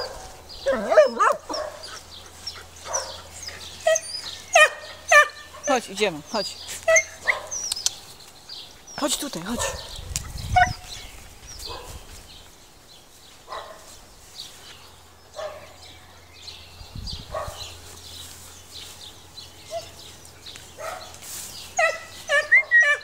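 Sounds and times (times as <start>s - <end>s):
dog barking: 0.0s - 2.0s, 2.8s - 3.3s, 4.6s - 5.8s, 6.9s - 7.6s, 9.6s - 10.0s, 11.7s - 12.0s, 13.5s - 13.9s, 15.4s - 15.8s, 17.3s - 17.7s, 20.8s - 21.2s, 21.8s - 23.0s.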